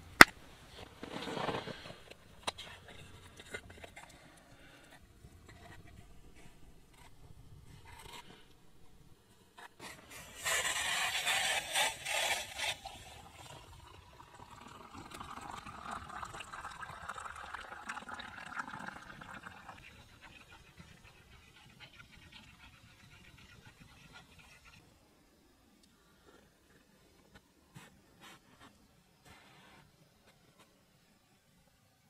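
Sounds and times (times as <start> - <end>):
water pouring into cup: 13.0 - 20.6.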